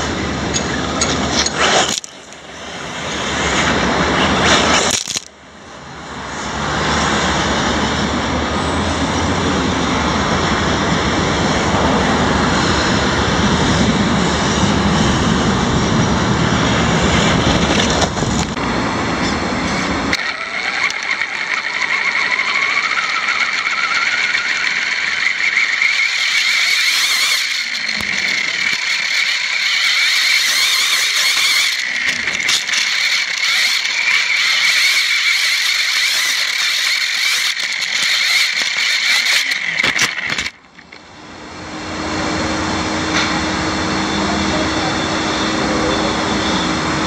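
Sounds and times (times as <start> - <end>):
rc buggy motor whining: 0.0 - 5.3, 16.6 - 41.0.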